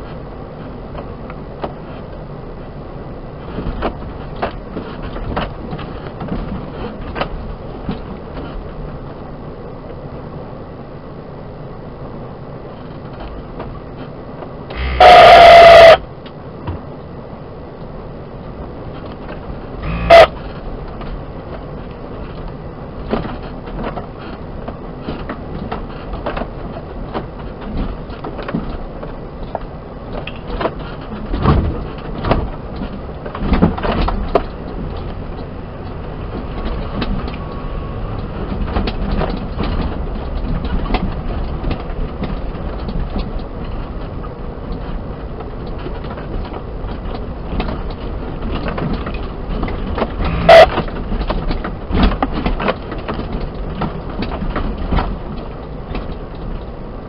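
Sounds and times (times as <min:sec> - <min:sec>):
engine and road drone: 0:00.0 - 0:57.0
loud distorted burst: 0:14.8 - 0:16.0, 0:19.8 - 0:20.3.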